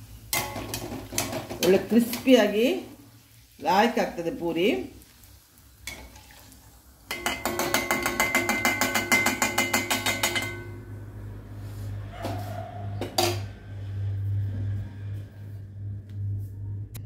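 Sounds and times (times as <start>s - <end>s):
ladle tapping metal pan rim: 7.1s - 10.8s
metal knocks on pan: 7.1s - 10.8s.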